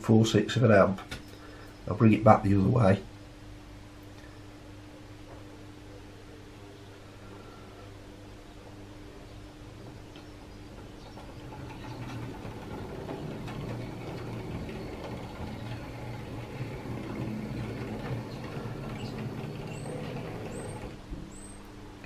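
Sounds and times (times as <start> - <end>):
wheels clicking on rail: 9.8 - 21.1
model train motor whirr: 11.7 - 21.0.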